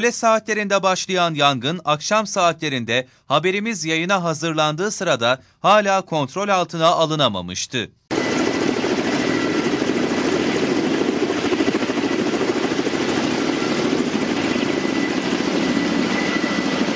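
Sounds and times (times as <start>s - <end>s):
helicopter rotor and engine: 8.1s - 16.9s.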